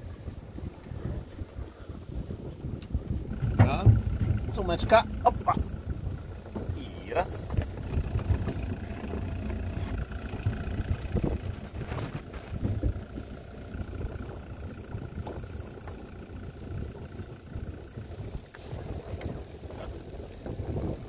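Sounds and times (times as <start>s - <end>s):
boat engine rumbling: 0.0s - 21.0s
short knocks: 3.3s - 6.8s.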